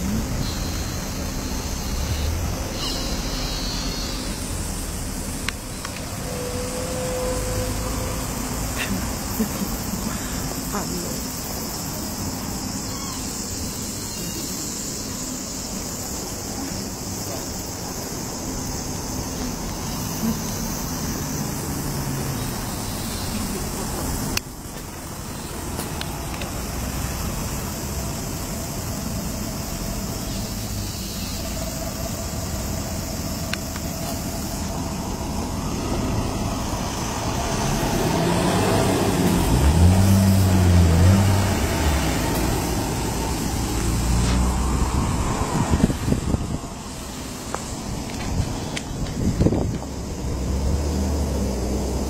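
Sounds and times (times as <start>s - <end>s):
low wavering engine sound: 0.0s - 12.8s
city street traffic noise: 0.0s - 52.0s.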